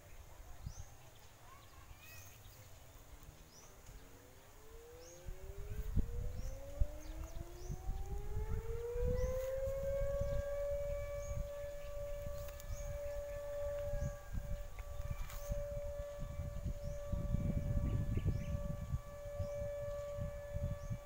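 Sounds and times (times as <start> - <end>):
siren winding up: 4.7 - 21.0.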